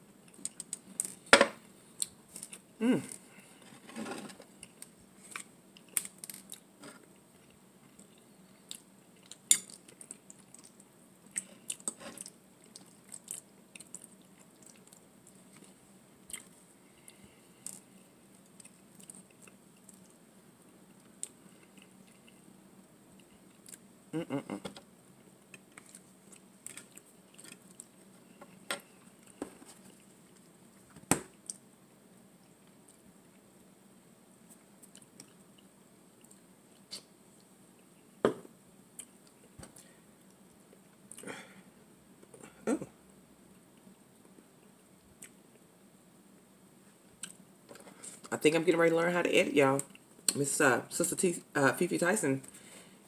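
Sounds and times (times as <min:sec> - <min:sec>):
person chewing: 0:07.4 - 0:20.2, 0:20.9 - 0:22.4, 0:25.4 - 0:30.5.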